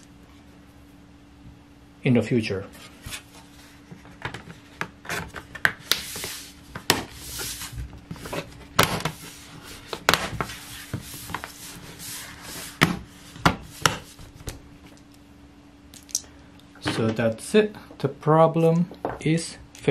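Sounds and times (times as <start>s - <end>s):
rubbing and handling noise: 2.6s - 15.0s.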